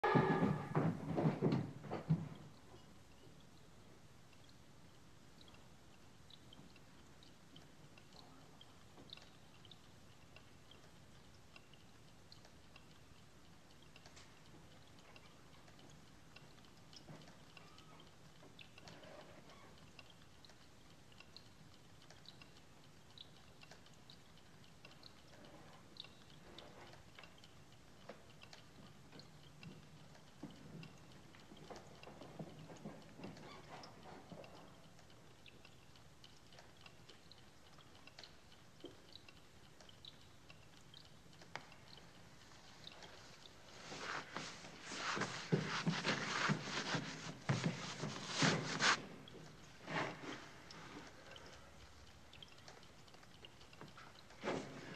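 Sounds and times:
light ticks and clicks: 1.5 - 54.9
hands scraping stone wall: 43.9 - 49.0.

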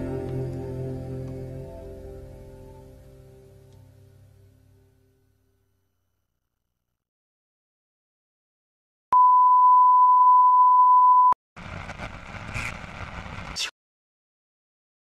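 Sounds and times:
steady pure test tone beep: 9.1 - 11.4
tv static hiss: 11.6 - 13.7.

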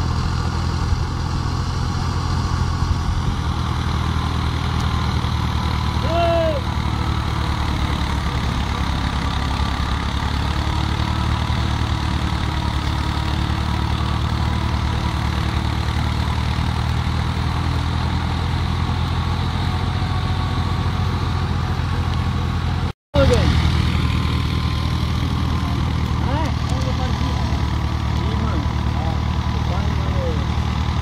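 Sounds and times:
threshing machine droning: 0.0 - 31.0
tractor diesel engine running: 0.0 - 31.0.

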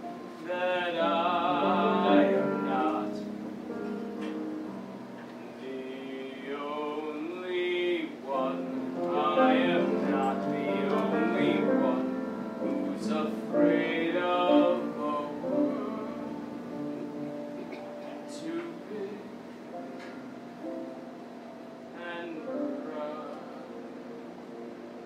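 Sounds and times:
instrumental accompaniment: 0.0 - 5.6
man singing: 0.4 - 3.4, 5.6 - 19.9, 21.9 - 24.1.

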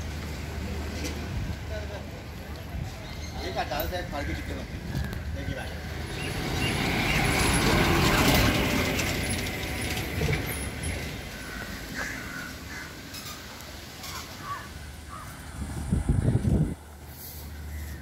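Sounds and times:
birds calling: 3.0 - 8.4, 10.6 - 15.5
vehicle passing: 4.6 - 13.1, 14.7 - 18.0.

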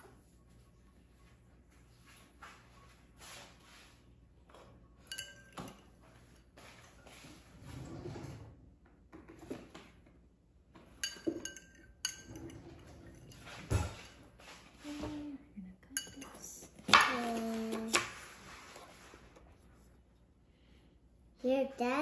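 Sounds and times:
fork clinking against ceramic bowl: 5.0 - 5.9, 11.0 - 12.5, 16.0 - 16.5.

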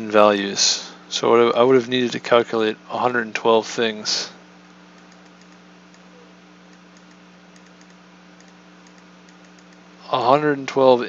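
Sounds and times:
low electrical hum: 0.0 - 11.0
computer input clicks: 6.7 - 9.8.

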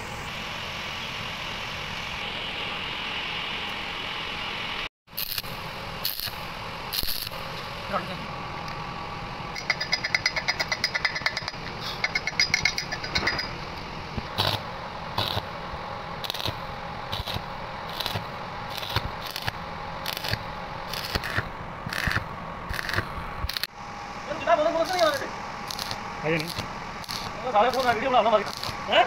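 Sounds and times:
welding rod crackling and popping: 5.1 - 7.6, 14.2 - 15.5, 16.2 - 23.7, 24.8 - 29.0
metallic tapping on weld: 9.6 - 13.5, 15.2 - 15.5, 16.2 - 16.6, 17.2 - 23.7, 24.9 - 28.8.

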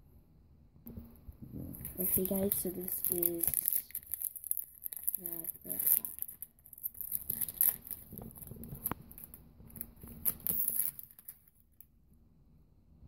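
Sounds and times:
plastic wrapper crinkling and tearing: 1.7 - 11.8
cards rustling and tapping: 1.8 - 11.5.

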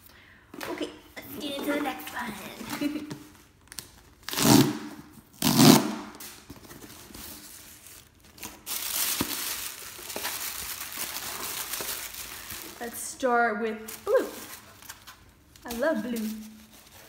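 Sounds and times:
wrapping crinkling: 5.6 - 17.0
packaging ripping: 7.5 - 13.0.

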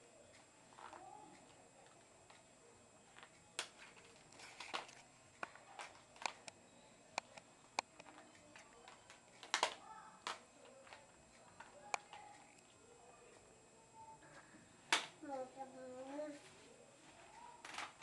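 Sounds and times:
plastic objects clicking and knocking: 3.1 - 6.6, 7.2 - 12.6, 17.6 - 18.0.

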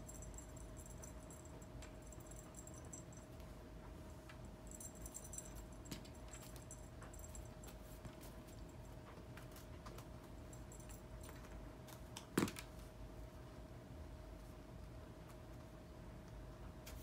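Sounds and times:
faint jingling: 0.0 - 3.4, 4.1 - 9.0
light ticks and rustles: 0.0 - 12.8
faint steady hum: 0.0 - 17.0.

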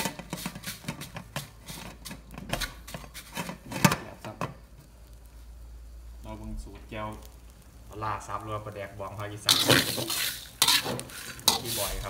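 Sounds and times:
chillies stirred in a metal wok: 0.0 - 4.2, 7.2 - 12.0.

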